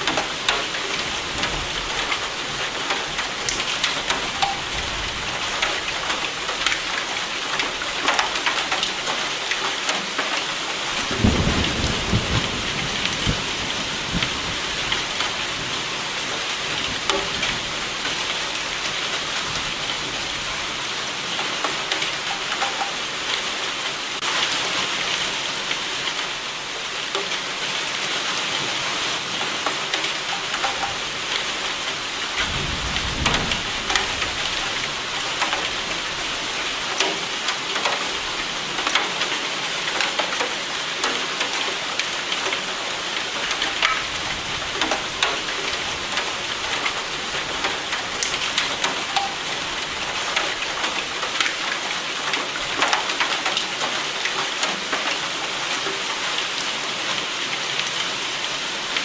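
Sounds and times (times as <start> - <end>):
thunder rumble: 32.4 - 34.6.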